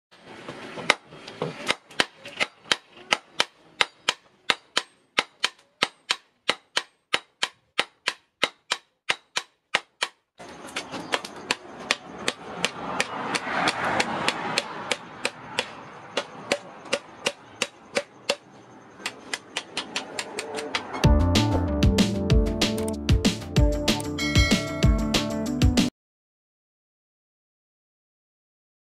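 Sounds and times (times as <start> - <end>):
hammer striking hot steel on anvil: 1.6 - 10.2, 11.1 - 20.9
steady background noise: 10.4 - 21.0.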